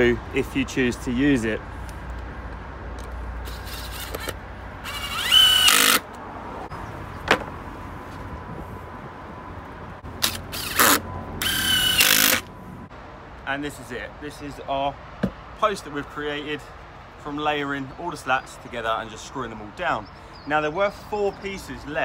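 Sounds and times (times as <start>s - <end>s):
cordless drill whining: 3.4s - 6.0s, 10.2s - 12.5s.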